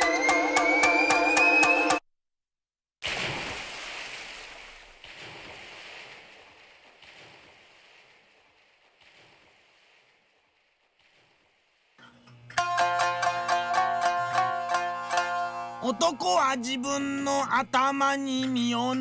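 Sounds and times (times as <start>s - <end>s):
plucked string music: 0.0s - 2.0s, 12.0s - 19.0s
water washing and lapping: 3.0s - 12.0s.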